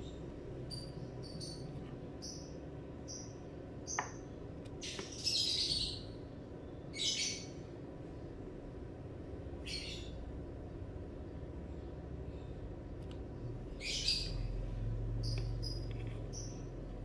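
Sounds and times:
bird chirping: 0.0s - 7.6s, 9.6s - 10.3s, 13.6s - 17.0s
steady low hum: 0.0s - 17.0s.

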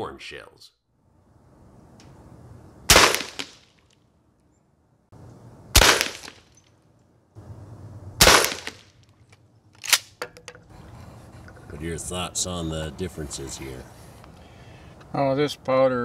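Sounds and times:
shotgun shots: 2.9s - 3.8s, 5.7s - 6.5s, 8.2s - 9.0s.

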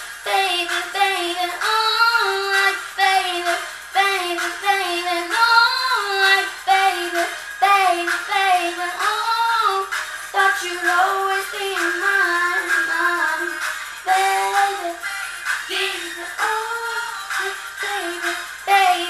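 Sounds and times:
girl singing a pop song: 0.0s - 19.0s.

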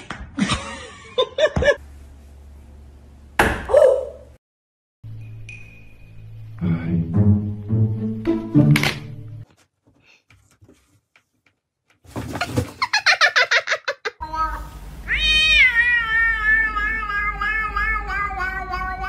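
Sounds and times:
cat meowing: 15.1s - 19.0s.

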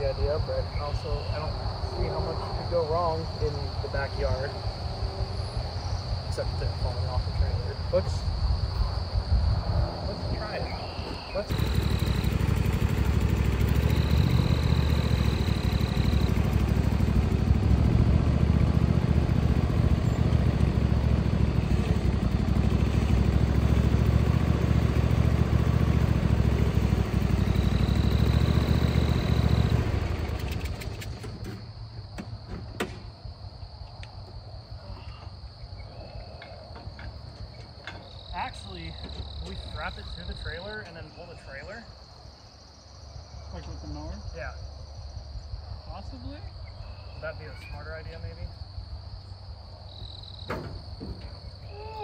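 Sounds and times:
crickets chirping: 0.0s - 52.0s
lawnmower engine running: 11.5s - 31.6s.

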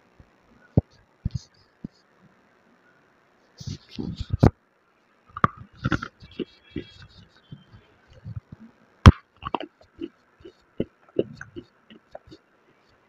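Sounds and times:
chewing crackles and thuds: 5.3s - 12.4s.

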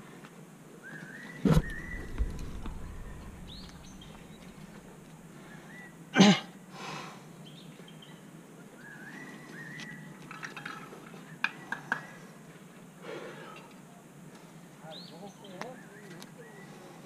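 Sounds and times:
birds chirping: 1.0s - 6.1s.

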